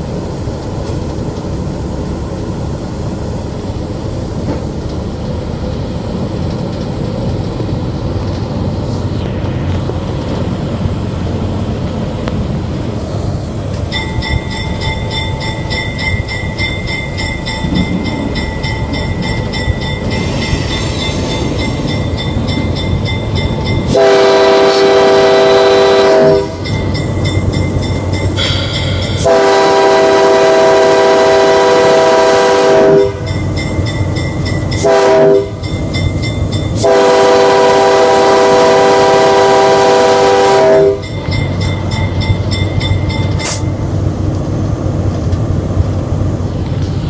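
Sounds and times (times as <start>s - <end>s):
locomotive engine rumbling: 0.0s - 47.0s
locomotive air horn blasts: 23.8s - 26.6s, 28.4s - 33.3s, 34.8s - 35.6s, 36.8s - 41.1s.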